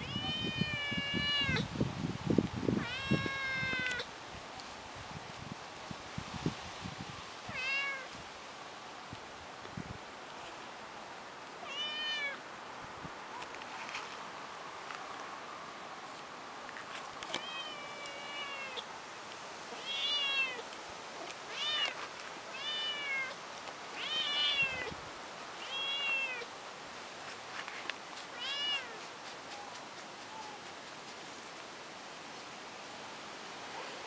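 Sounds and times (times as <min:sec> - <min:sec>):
kitten meowing: 0:07.5 - 0:08.1, 0:11.7 - 0:12.4, 0:19.8 - 0:20.6, 0:22.6 - 0:23.4, 0:24.0 - 0:24.9, 0:25.6 - 0:26.5, 0:28.4 - 0:29.0.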